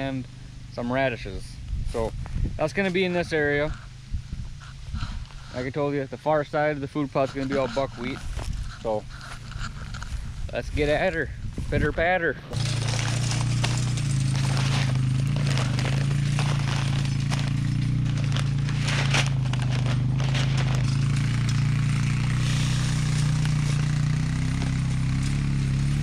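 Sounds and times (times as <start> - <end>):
atv engine idling: 0.0 - 26.0
plastic bags crinkling: 12.6 - 21.4.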